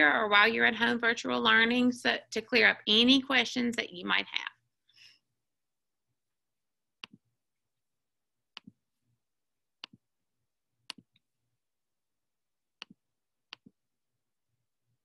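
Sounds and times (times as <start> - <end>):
computer mouse clicks: 7.0 - 7.2, 8.5 - 8.8, 9.8 - 10.0, 10.8 - 11.2, 12.8 - 13.8.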